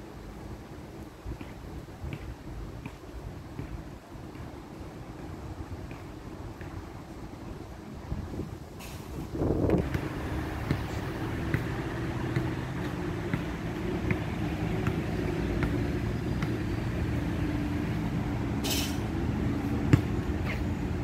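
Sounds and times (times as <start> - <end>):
city traffic rumble: 0.0 - 21.0
short high hiss: 8.8 - 9.2, 18.6 - 19.0
footsteps on paved path: 19.1 - 21.0.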